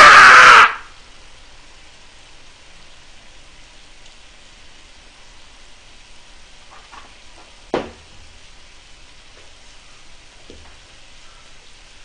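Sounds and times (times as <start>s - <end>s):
sharp thump: 7.7s - 8.0s.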